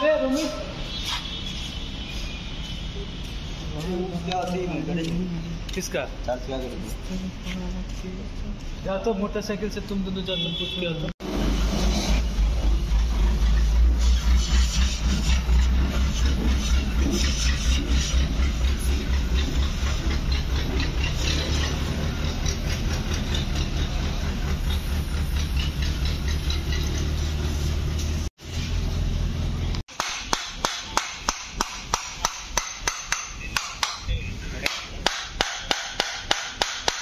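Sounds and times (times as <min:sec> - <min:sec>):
metal tool chipping knocks: 0:29.9 - 0:37.0.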